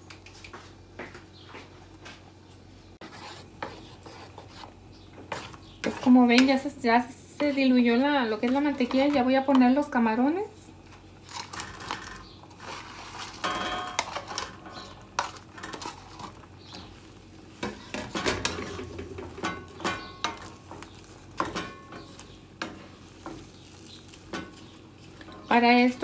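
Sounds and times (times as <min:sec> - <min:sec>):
light sizzle: 0:01.9 - 0:26.0
spoon knocking plate and pan: 0:13.4 - 0:15.3, 0:17.6 - 0:23.5.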